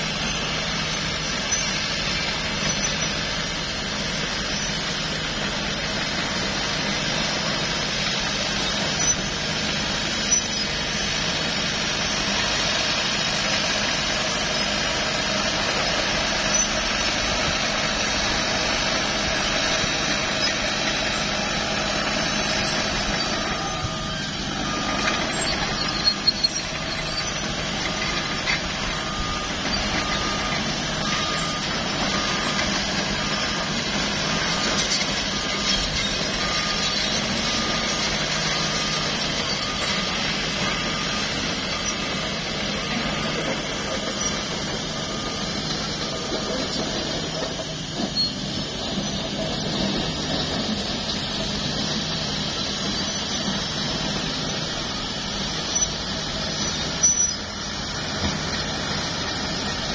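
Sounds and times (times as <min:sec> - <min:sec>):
bulldozer diesel engine: 0:00.0 - 0:59.9
reversing alarm beeping: 0:00.0 - 0:59.9.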